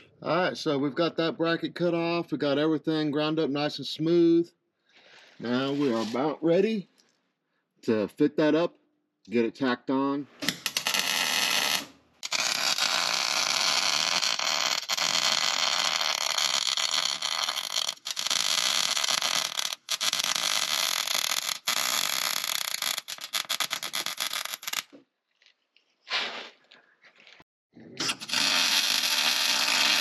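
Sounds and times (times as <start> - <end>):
electric welder arc hissing: 10.5 - 24.9, 28.0 - 30.0.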